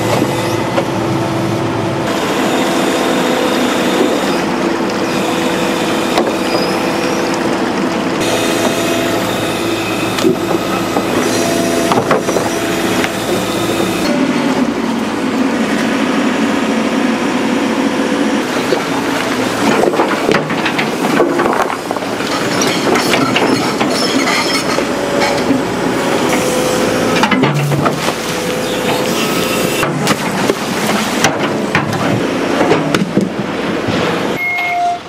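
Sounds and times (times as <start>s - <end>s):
excavator engine and hydraulics: 0.0s - 35.0s
metal clanks and knocks: 19.7s - 25.7s, 27.2s - 28.2s
metallic squeals: 22.6s - 25.4s, 34.4s - 35.0s.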